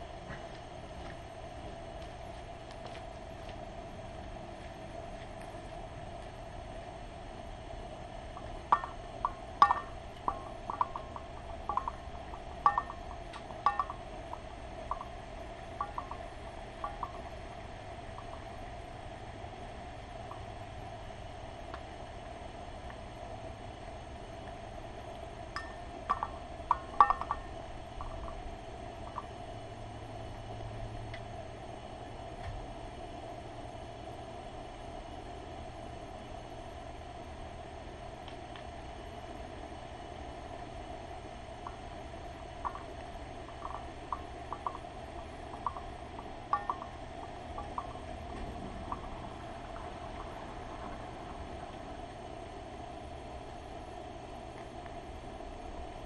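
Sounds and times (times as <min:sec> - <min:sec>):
steady faint hum: 0:00.0 - 0:56.0
bird feeder clinks and taps: 0:12.7 - 0:14.0, 0:25.6 - 0:28.3.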